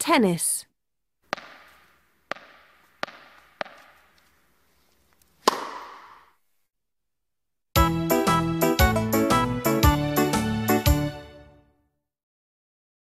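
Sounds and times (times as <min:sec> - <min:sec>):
tennis ball hits: 0:01.3 - 0:04.5, 0:05.4 - 0:06.4.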